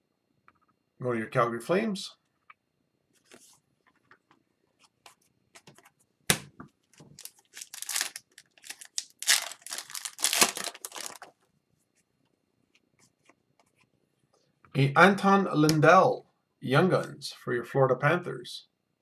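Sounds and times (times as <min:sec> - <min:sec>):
foil wrapper tearing and crinkling: 0:07.0 - 0:11.3.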